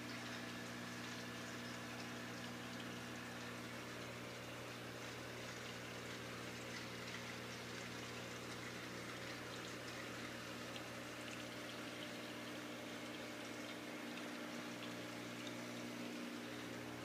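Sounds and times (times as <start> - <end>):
aquarium pump hum: 0.0 - 17.0
water trickling: 0.0 - 17.0.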